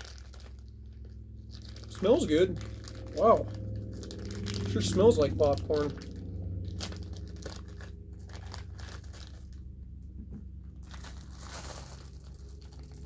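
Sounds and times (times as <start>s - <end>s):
plastic snack bag crinkling: 0.0s - 9.8s, 10.7s - 13.0s
steady low hum: 0.0s - 13.0s.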